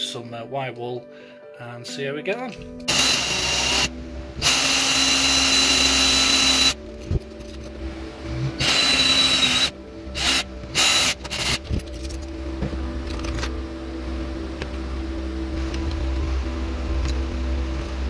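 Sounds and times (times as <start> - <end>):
power drill boring into metal: 2.9 - 6.8, 8.6 - 11.6.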